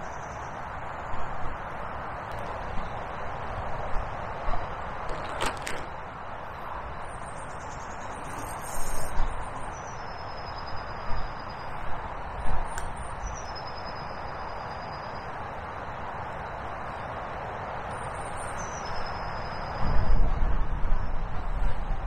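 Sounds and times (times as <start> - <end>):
handling bumps and clicks: 5.0 - 6.0
river hiss: 7.6 - 11.4.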